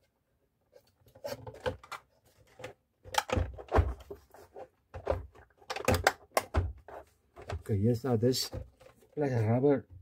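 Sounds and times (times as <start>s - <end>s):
knocks and clatter of handled cooker: 3.1s - 4.1s, 5.0s - 7.7s.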